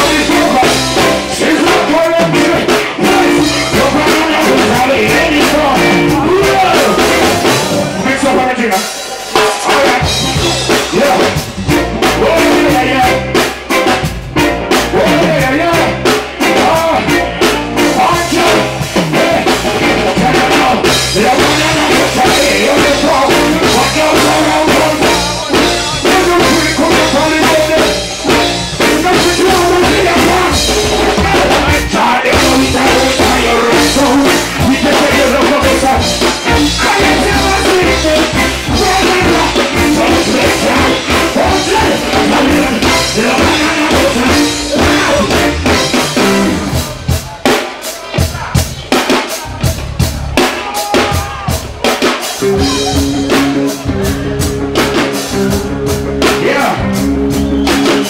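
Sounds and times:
live reggae band playing: 0.0 - 58.0
man singing: 0.0 - 58.0.

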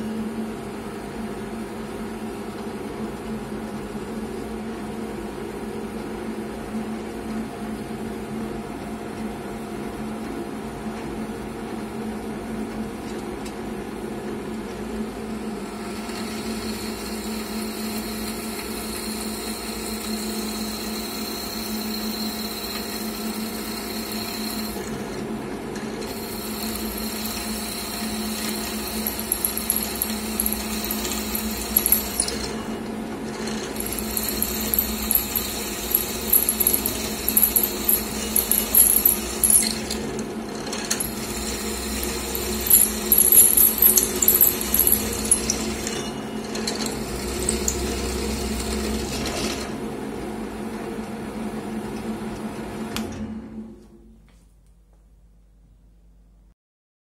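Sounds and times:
drill press motor hum: 15.6 - 49.8
drill bit cutting metal: 26.0 - 32.7, 33.4 - 40.0, 40.7 - 46.0.

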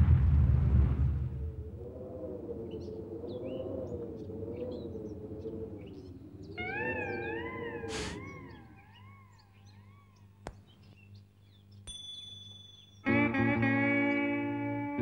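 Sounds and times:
wobbling wavering tone: 2.6 - 10.2
higher wavering tone: 6.5 - 10.1, 11.9 - 14.8
brief hiss-like burst: 7.9 - 8.2.

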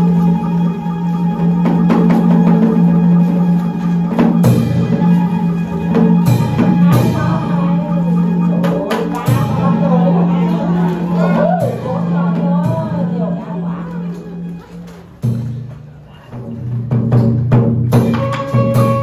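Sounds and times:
plucked strings: 0.0 - 19.0
deep drum strikes: 1.4 - 13.7.

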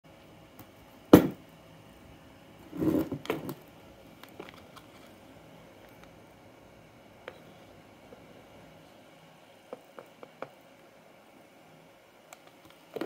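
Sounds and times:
knock on workbench: 1.1 - 1.4
rustling scrape: 2.6 - 3.5.

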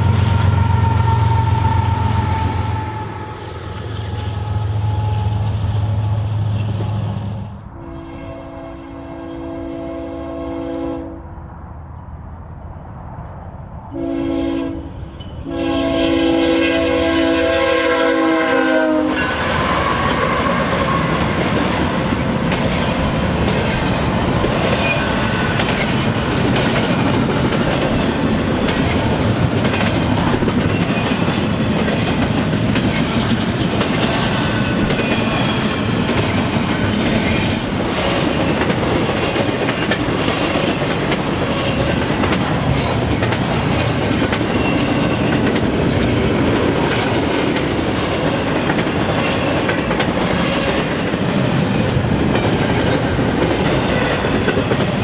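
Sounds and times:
train air horn blasts: 0.0 - 3.5, 7.7 - 11.2, 13.9 - 21.2
freight train rumbling past: 0.0 - 55.0
rail clicks: 18.6 - 55.0.

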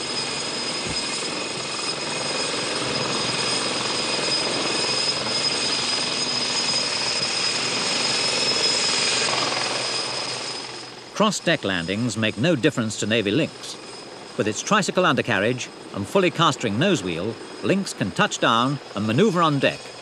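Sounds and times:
helicopter engine and rotor noise: 0.0 - 20.0
helicopter turbine whine: 0.0 - 20.0.

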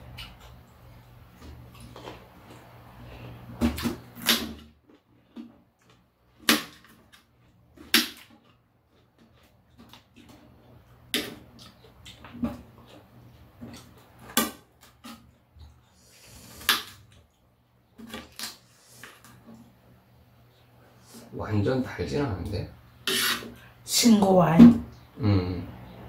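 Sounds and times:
people chewing crisp fruit: 0.0 - 19.8.

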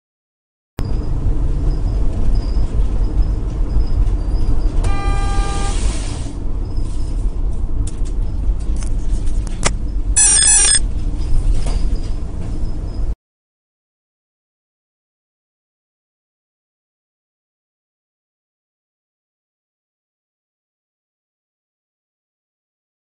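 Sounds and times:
tyre and road noise on wet road: 1.0 - 10.1
car horn: 4.8 - 5.9.

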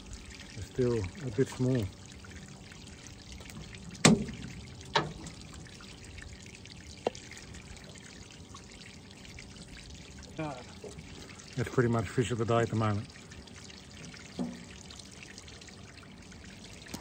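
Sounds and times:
water trickling: 0.0 - 17.0
sharp knocks: 4.0 - 4.4.

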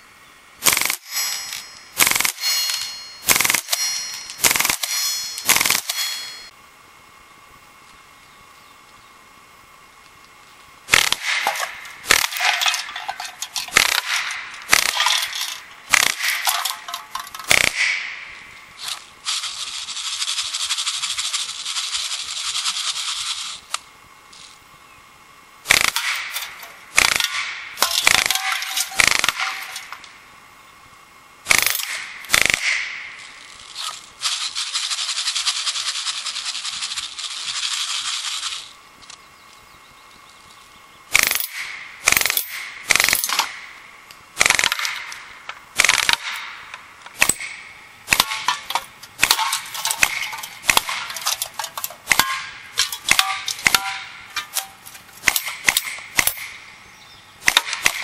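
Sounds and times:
bb pistol firing: 0.6 - 6.4, 10.9 - 12.8, 13.7 - 16.8, 17.4 - 18.2, 25.7 - 29.8, 31.5 - 33.1, 41.1 - 43.7, 44.4 - 51.1, 57.4 - 58.0.

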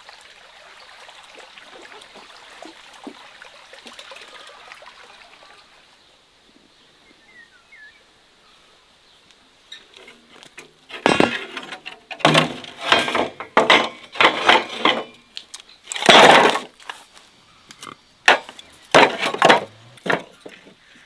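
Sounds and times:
log scraping on metal: 9.7 - 15.3, 15.9 - 17.0, 17.8 - 20.8
wooden logs knocking: 10.0 - 15.2, 16.0 - 16.8, 18.3 - 20.8.

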